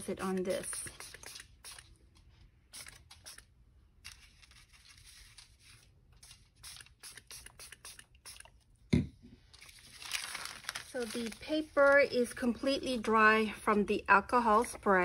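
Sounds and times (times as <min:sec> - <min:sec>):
spray bottle hissing: 0:00.9 - 0:01.9, 0:02.7 - 0:03.5, 0:06.6 - 0:08.5
paper being shifted: 0:09.6 - 0:12.3.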